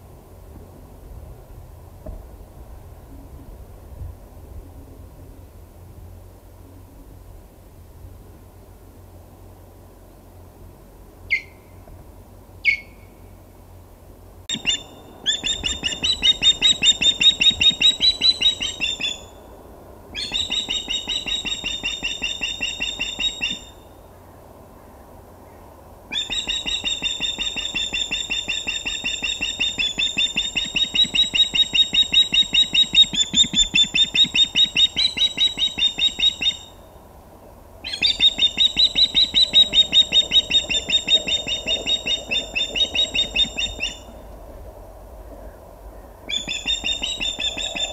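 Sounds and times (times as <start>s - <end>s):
osprey alarm calls: 11.3s - 11.6s, 12.6s - 13.1s, 14.5s - 19.4s, 20.1s - 23.9s, 26.1s - 36.8s, 37.8s - 44.2s, 46.3s - 47.9s.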